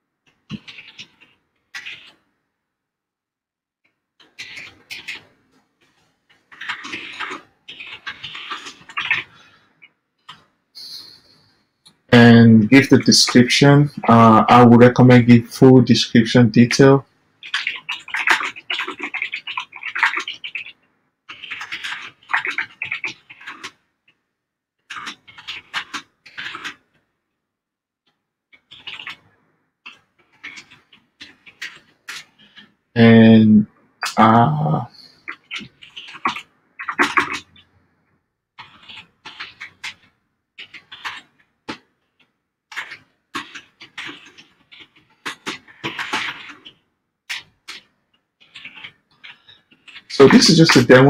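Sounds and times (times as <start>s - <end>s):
keyboard typing: 0.3s - 2.3s, 4.2s - 5.4s, 6.3s - 11.3s, 17.4s - 24.2s, 24.9s - 27.0s, 28.5s - 32.8s, 35.2s - 37.7s, 38.6s - 51.0s.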